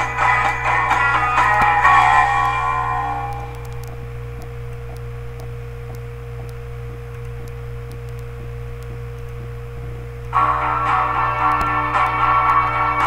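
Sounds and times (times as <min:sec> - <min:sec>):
constant mid-pitched tone: 0:00.0 - 0:13.0
steady hum: 0:00.0 - 0:13.0
faint scattered ticks: 0:03.4 - 0:09.5.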